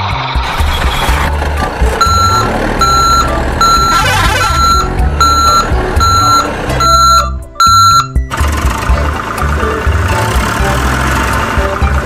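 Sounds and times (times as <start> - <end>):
reversing alarm beeps: 2.0 - 8.2.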